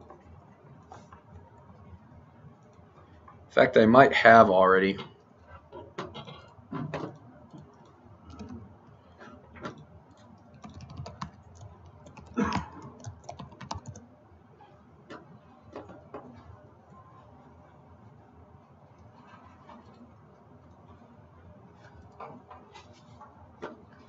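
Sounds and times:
typing on computer keyboard: 7.1 - 8.6, 9.6 - 14.0.

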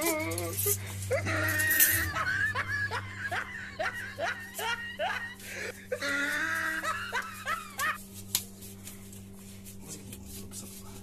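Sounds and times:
steady low hum: 0.0 - 11.0
man laughing: 0.7 - 8.0.

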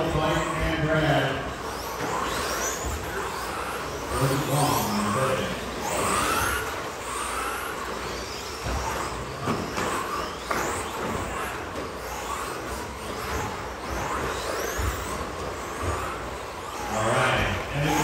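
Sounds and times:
electric motors whining: 0.0 - 18.0.

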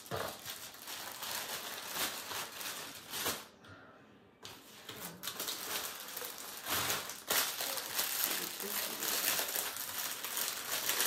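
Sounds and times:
plastic packaging crinkling: 0.0 - 3.6, 4.8 - 11.0.

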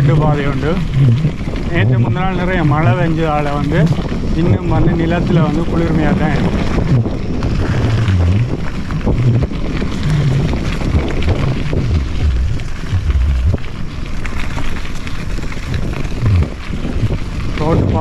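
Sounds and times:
bike rattling and knocking: 0.0 - 18.0
tyre noise on dirt: 0.0 - 18.0
wind buffeting microphone: 0.0 - 18.0.

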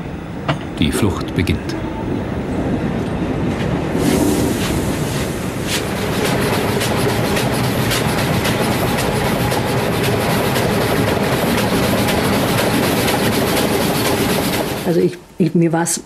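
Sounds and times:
steam locomotive running: 0.0 - 15.6
wheels clicking and knocking: 5.7 - 15.1.

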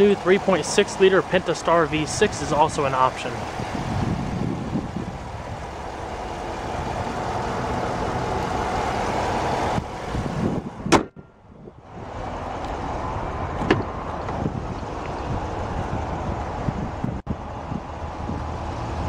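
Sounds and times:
car engine idling: 0.0 - 15.6
car hood slamming shut: 10.8 - 11.3, 13.6 - 13.9.

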